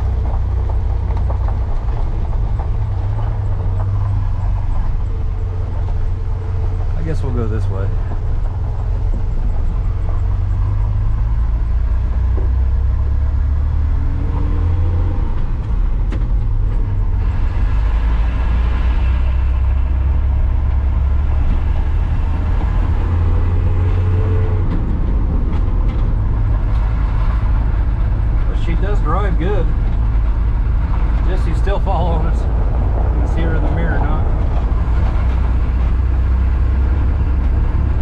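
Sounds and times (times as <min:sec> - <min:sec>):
tyres on gravel: 0:00.0 - 0:12.8
truck engine rumble: 0:00.0 - 0:38.0.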